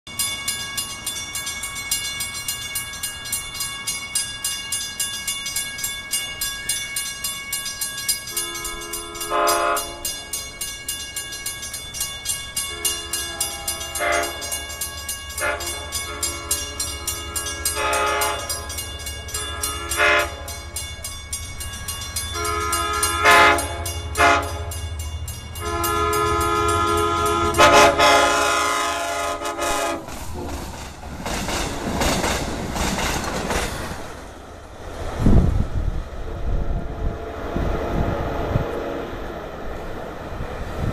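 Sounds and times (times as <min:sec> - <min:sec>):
crossing bell ringing: 0:00.0 - 0:30.0
low train rumble: 0:00.1 - 0:40.9
locomotive air horn blasts: 0:08.3 - 0:10.2, 0:12.7 - 0:14.7, 0:15.4 - 0:18.8, 0:19.4 - 0:20.6, 0:22.3 - 0:24.8, 0:25.6 - 0:30.1.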